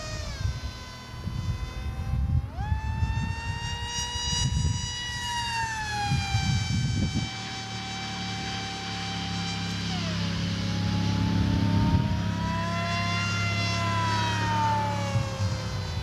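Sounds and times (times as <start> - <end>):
wind buffeting microphone: 0.0 - 7.6, 11.0 - 16.0
electric motor and propeller whining: 0.0 - 16.0.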